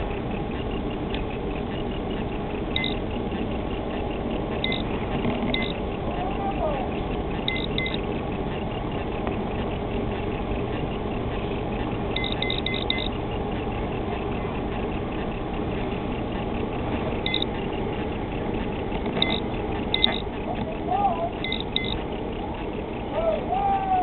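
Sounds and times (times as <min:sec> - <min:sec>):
boat running on water: 0:00.0 - 0:24.0
short high electronic beeps: 0:02.8 - 0:03.0, 0:04.6 - 0:04.9, 0:05.5 - 0:05.8, 0:07.4 - 0:08.0, 0:12.2 - 0:13.2, 0:17.2 - 0:17.6, 0:19.2 - 0:20.3, 0:21.4 - 0:22.0.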